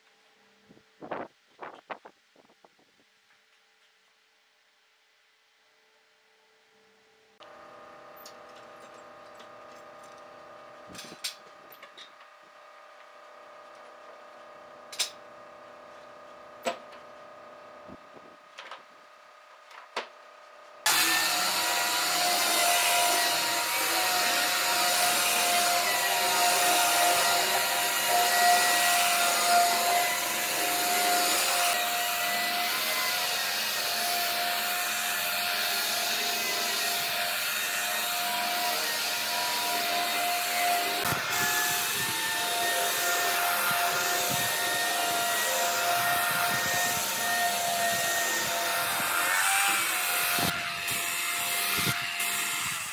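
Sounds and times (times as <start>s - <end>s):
belt sander on wood: 20.9s - 52.9s.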